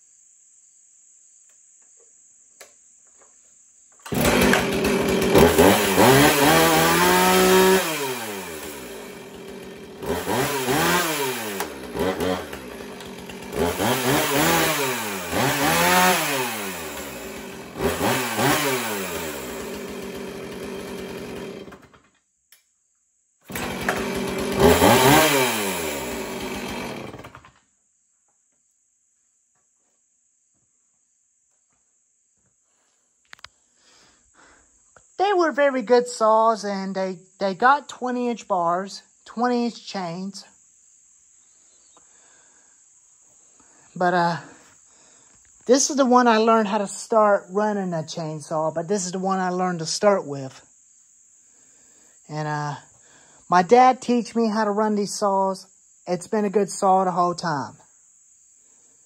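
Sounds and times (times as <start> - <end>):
chainsaw revving and idling: 4.0 - 22.1, 23.4 - 27.6, 43.6 - 50.4.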